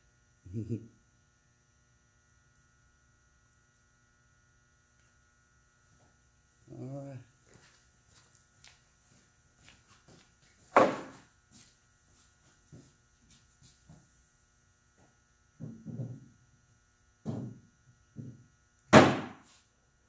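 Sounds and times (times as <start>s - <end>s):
faint steady hum: 0.0s - 20.0s
sharp knocks: 10.7s - 11.2s, 18.9s - 19.4s.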